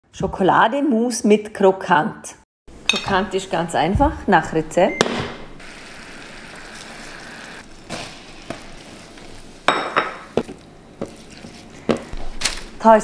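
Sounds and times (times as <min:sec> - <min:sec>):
butter bubbling and sizzling: 0:05.6 - 0:11.8.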